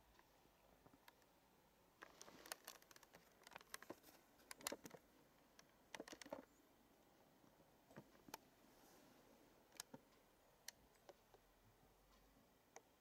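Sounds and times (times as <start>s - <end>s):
faint clicks: 0.0s - 1.4s, 2.0s - 6.6s, 9.6s - 13.0s
soft rustles: 2.0s - 5.4s, 7.9s - 10.1s.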